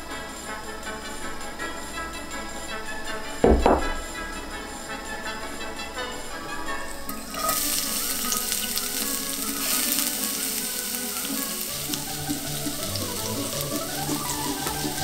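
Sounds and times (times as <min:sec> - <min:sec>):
background music: 0:00.0 - 0:15.0
onion sizzling in hot oil: 0:07.2 - 0:15.0.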